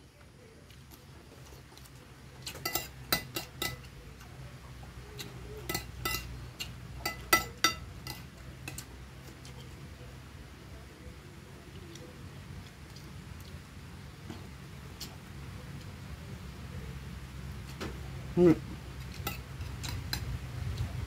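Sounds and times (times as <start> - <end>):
cutlery clinking on ceramic plate: 2.4 - 3.9, 5.2 - 8.9, 19.1 - 20.2.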